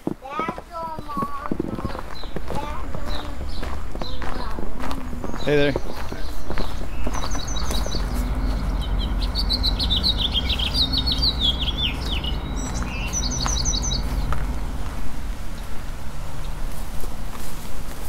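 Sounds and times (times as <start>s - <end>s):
songbirds chirping: 0.2s - 18.0s
steady low rumble: 6.4s - 18.0s.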